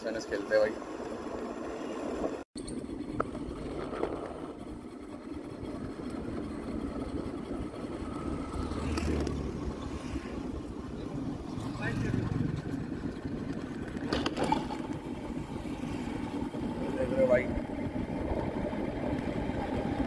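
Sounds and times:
wind and tyre noise: 0.0 - 20.0
passing vehicle hum: 5.4 - 20.0.

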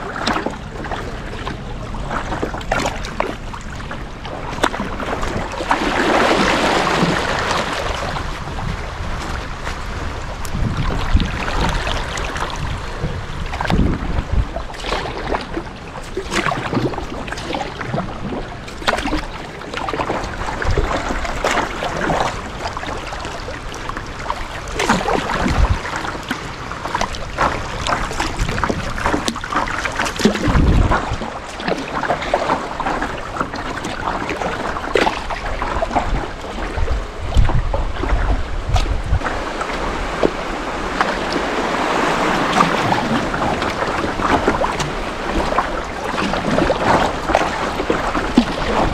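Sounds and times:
paddle splashing water: 0.0 - 48.9
wind rumbling on microphone: 0.0 - 48.9.

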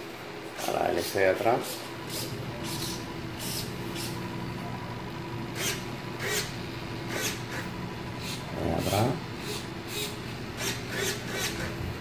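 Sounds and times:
low electric hum: 0.0 - 12.0.

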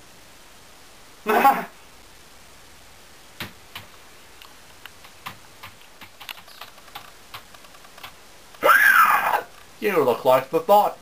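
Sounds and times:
computer keyboard typing: 5.0 - 8.2.

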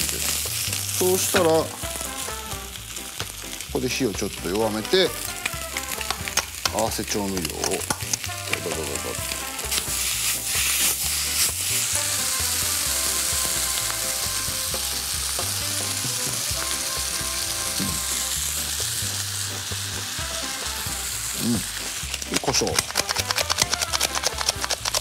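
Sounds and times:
stir-fry sizzling in a frying pan: 0.0 - 25.0
utensil clicks and clatters: 22.0 - 25.0.

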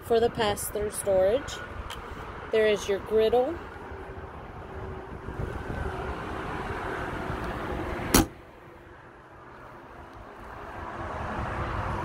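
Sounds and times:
compartment door slamming: 8.1 - 8.4.

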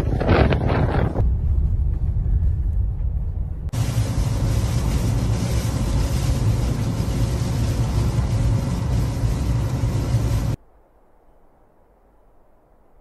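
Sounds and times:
vehicle rumble: 0.0 - 10.6
wind hiss: 3.7 - 12.6.

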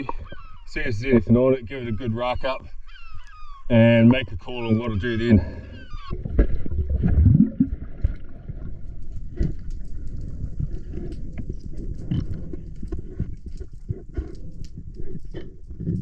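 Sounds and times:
muffled moving water rumble: 3.7 - 16.0.

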